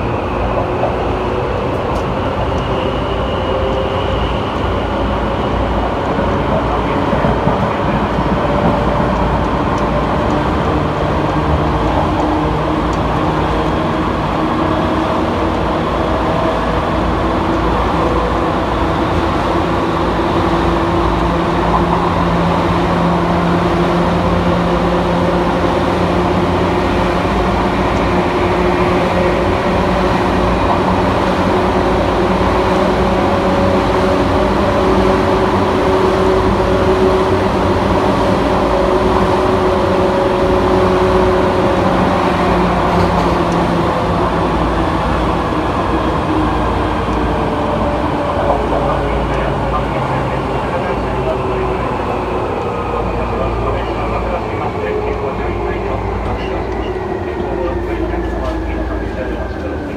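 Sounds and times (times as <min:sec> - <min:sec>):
wheels rumbling on rail: 0:00.0 - 0:59.9.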